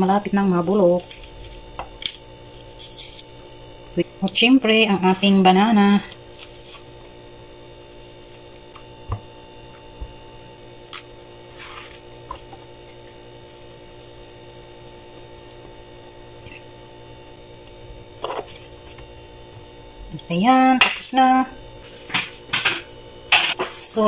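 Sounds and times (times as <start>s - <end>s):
background hum: 0.0s - 24.0s
banana peel tearing: 1.0s - 3.4s, 6.1s - 7.0s, 10.8s - 12.8s.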